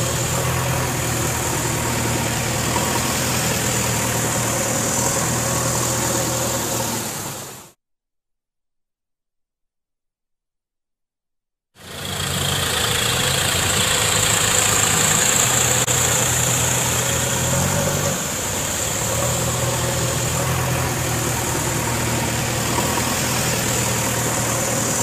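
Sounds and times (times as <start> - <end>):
diesel engines running: 0.0 - 7.8, 11.8 - 25.0.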